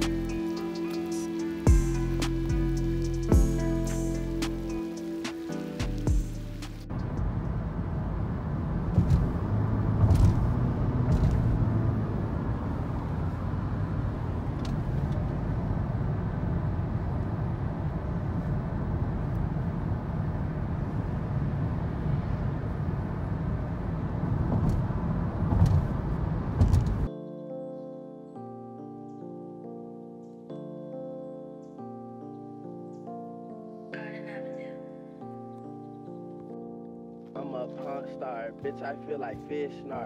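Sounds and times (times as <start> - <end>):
low rumbling noise: 5.9 - 27.1.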